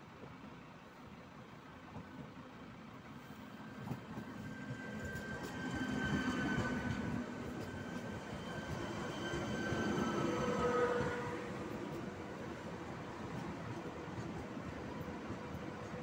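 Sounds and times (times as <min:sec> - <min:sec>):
train wheels rumbling: 0:01.8 - 0:16.0.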